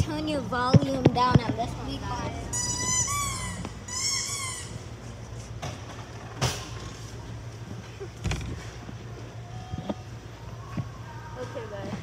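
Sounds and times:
low steady hum: 0.0s - 12.0s
high-pitched squeals: 2.5s - 5.0s.

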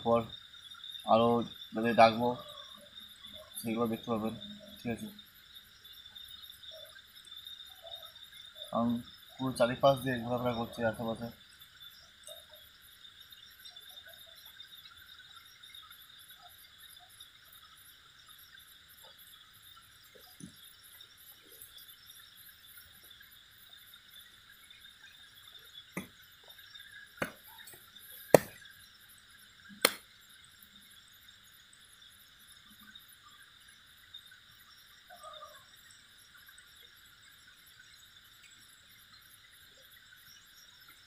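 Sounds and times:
crickets and night insects: 0.0s - 41.0s.

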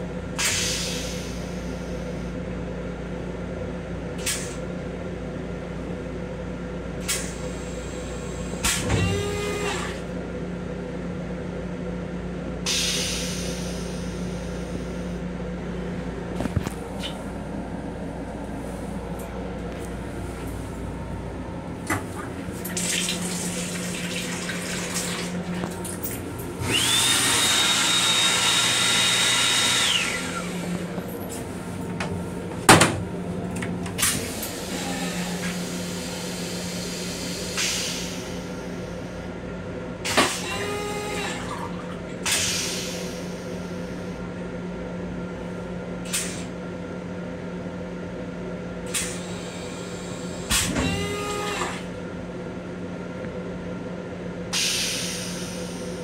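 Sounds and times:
low train hum: 0.0s - 56.0s
hand dryer whine and air rush: 7.1s - 10.1s, 12.7s - 44.2s, 48.9s - 52.0s, 54.5s - 56.0s.

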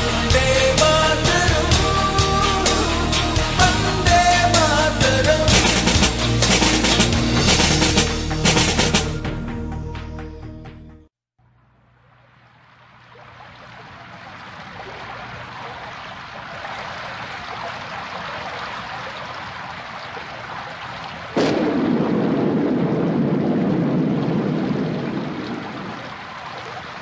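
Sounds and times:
steady rushing noise: 21.3s - 27.0s
loud rumbling boom: 21.4s - 26.2s.

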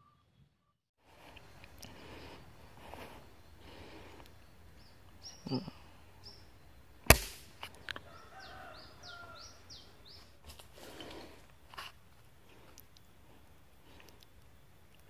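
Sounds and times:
air rifle shot crack: 7.1s - 7.6s.

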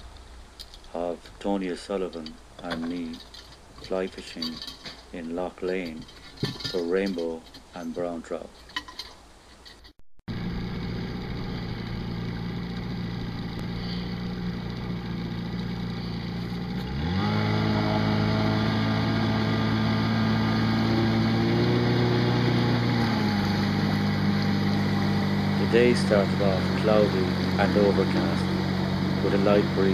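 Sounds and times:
outboard motor running: 10.3s - 29.9s.

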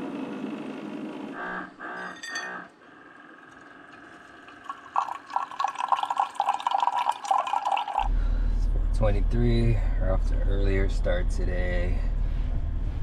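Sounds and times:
coffee maker humming: 0.0s - 8.2s
coffee gurgling and splashing: 3.5s - 8.1s.

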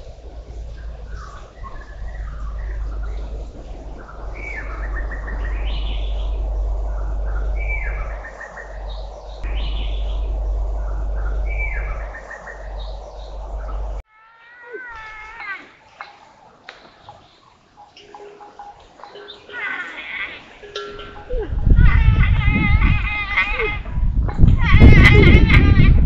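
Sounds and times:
steady low rumble: 0.0s - 14.0s, 20.8s - 26.0s
bird chirping song: 0.0s - 14.1s, 14.9s - 25.8s.

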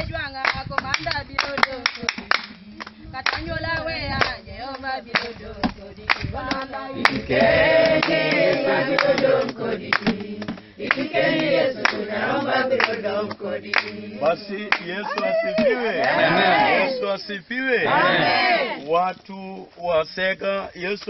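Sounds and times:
group singing unaccompanied: 0.0s - 17.2s, 17.8s - 18.9s
hand clapping: 0.4s - 12.0s, 12.8s - 16.2s.

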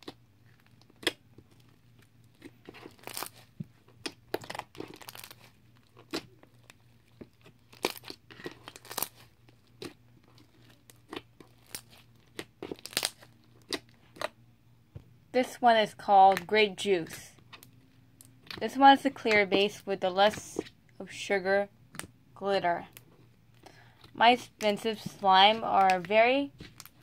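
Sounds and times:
slime being squished by hand: 0.0s - 14.4s.

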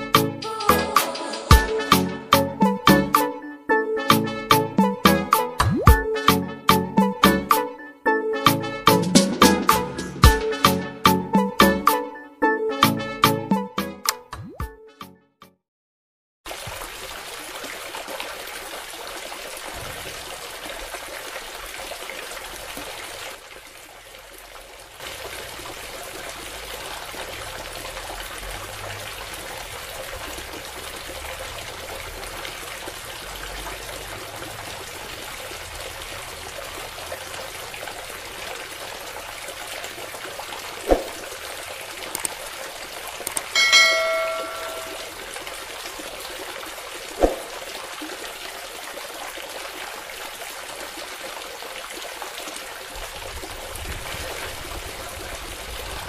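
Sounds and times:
water pouring and splashing: 16.5s - 56.0s.

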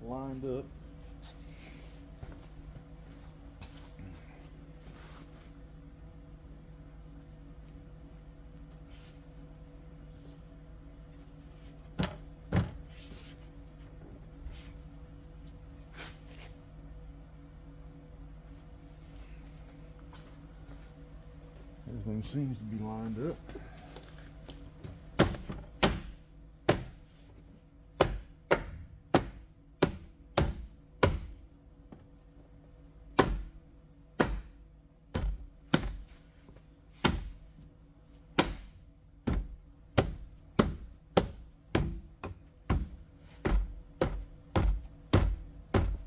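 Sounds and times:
faint steady hum: 0.0s - 46.0s
sharp knocks on car door: 39.2s - 46.0s.

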